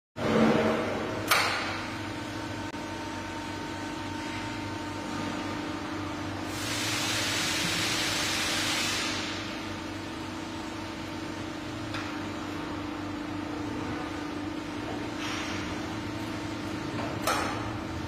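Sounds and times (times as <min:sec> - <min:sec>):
air hissing: 0:06.5 - 0:09.6.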